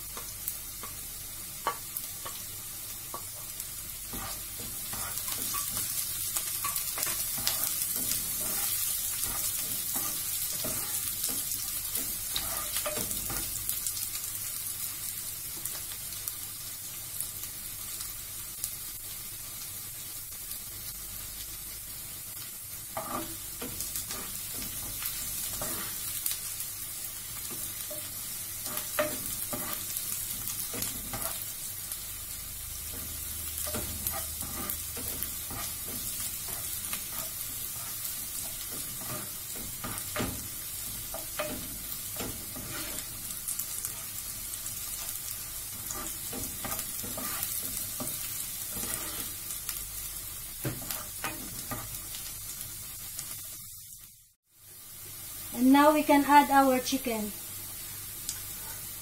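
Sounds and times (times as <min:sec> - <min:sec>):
onion sizzling in hot oil: 0:00.0 - 0:59.0
spatula scraping and tapping pan: 0:00.1 - 0:13.6, 0:23.0 - 0:26.1, 0:27.4 - 0:31.5, 0:32.9 - 0:43.2, 0:45.7 - 0:49.4, 0:50.6 - 0:52.0.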